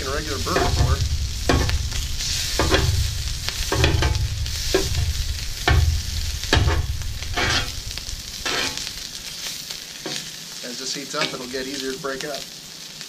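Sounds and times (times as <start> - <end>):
low rumble: 0.0 - 10.4
metal spatula scraping griddle: 0.0 - 10.4
sausage sizzling: 0.0 - 13.0.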